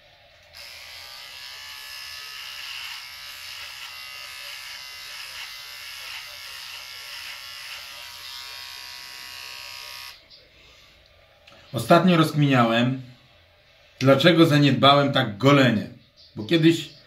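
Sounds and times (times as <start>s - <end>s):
electric beard trimmer buzzing: 0.4s - 10.2s.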